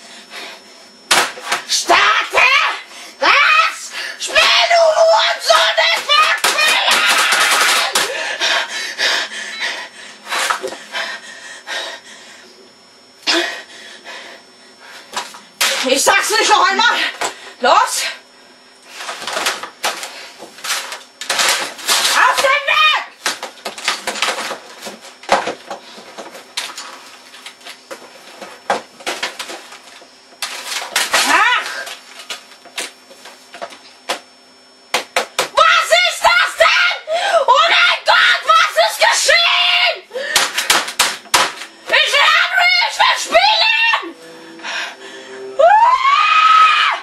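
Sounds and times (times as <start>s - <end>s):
boy breathing heavily: 8.0s - 12.5s.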